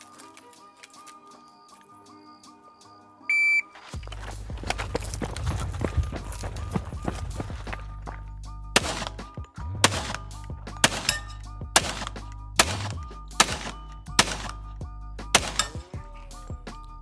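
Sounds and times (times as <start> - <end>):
background music: 0.0 - 17.0
gunshots with echo: 8.8 - 14.7, 15.4 - 15.9.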